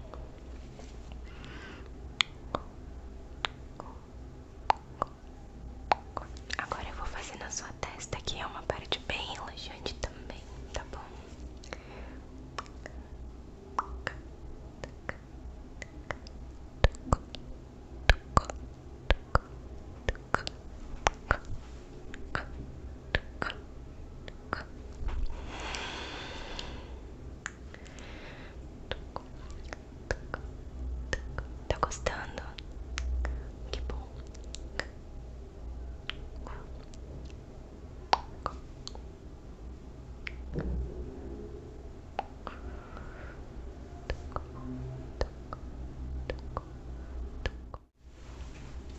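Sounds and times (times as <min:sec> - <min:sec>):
low steady hum: 0:00.0 - 0:48.9
wet mouth clicks and lip pops: 0:02.2 - 0:02.7, 0:04.6 - 0:05.3, 0:13.8 - 0:14.2, 0:18.1 - 0:19.5, 0:40.2 - 0:40.6.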